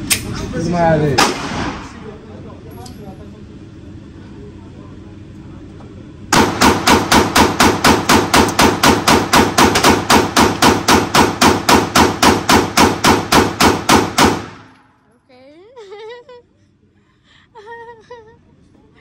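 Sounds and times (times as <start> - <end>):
rapid pistol shots indoors: 1.2 - 2.0, 6.3 - 14.9.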